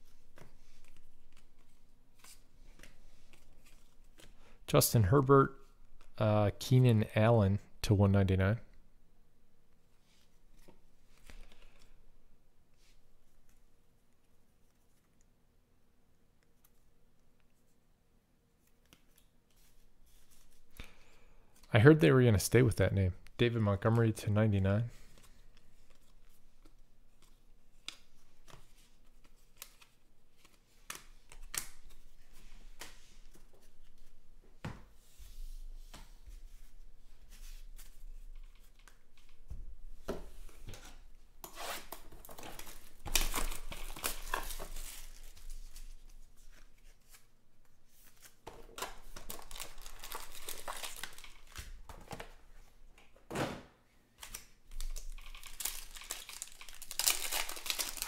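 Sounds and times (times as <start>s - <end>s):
wrappers tearing and crinkling: 41.7s - 46.0s, 49.1s - 51.6s, 54.2s - 58.0s.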